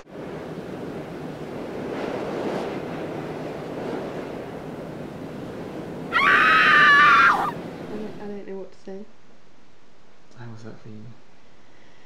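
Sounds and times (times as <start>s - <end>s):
high shriek sliding down: 6.1s - 7.6s.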